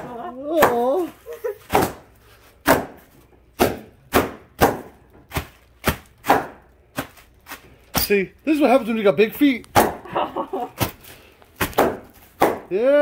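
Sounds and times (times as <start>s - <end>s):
bubble wrap popping underfoot: 0.0s - 2.4s, 4.6s - 8.3s, 10.7s - 12.7s.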